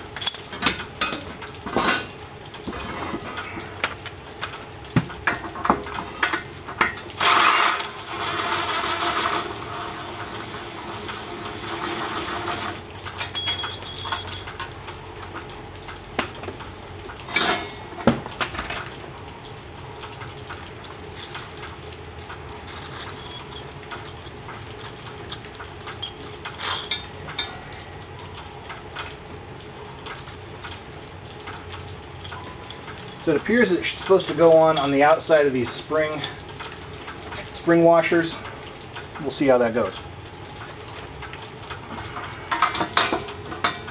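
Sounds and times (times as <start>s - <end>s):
metal parts clinking on concrete: 0.2s - 0.8s, 7.2s - 8.0s, 13.2s - 14.6s, 21.1s - 21.5s, 22.6s - 27.5s.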